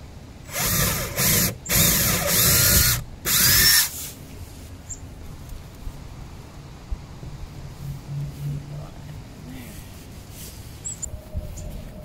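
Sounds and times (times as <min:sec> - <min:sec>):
cordless drill running: 0:00.5 - 0:03.9.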